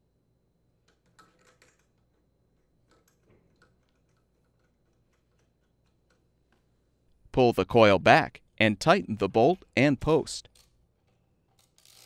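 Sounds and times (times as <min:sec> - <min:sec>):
small metal clicks: 0:00.8 - 0:06.6.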